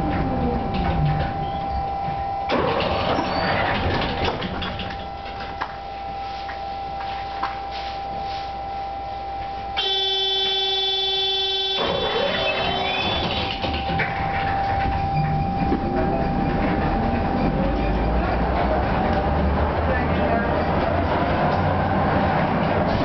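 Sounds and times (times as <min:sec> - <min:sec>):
tram rolling with high whine: 0:00.0 - 0:23.0
buzzing signal tone: 0:00.4 - 0:18.5
wheels clicking over rails: 0:02.5 - 0:05.8, 0:11.8 - 0:23.0.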